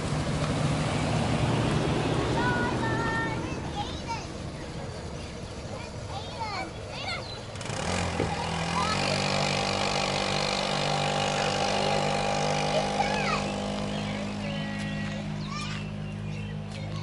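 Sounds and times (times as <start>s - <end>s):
go-kart engine running: 0.0s - 17.0s.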